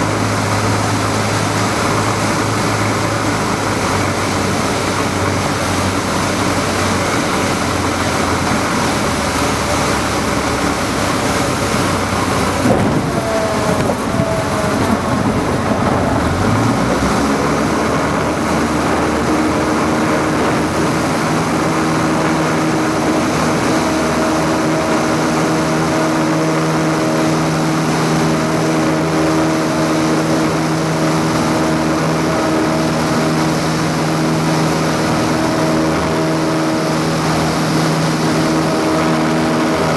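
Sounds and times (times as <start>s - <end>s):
airflow noise: 0.0s - 39.9s
light aircraft piston engine: 0.0s - 39.9s.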